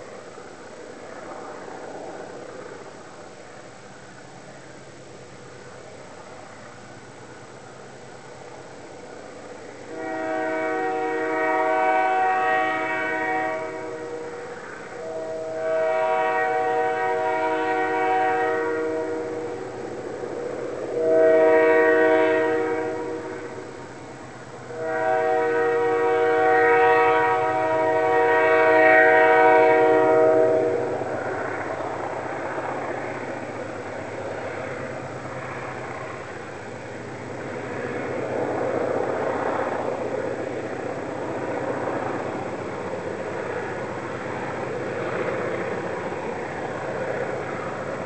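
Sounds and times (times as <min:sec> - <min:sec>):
train rumble: 0:00.0 - 0:48.0
train air horn blasts: 0:09.9 - 0:19.8, 0:20.9 - 0:23.8, 0:24.7 - 0:31.5.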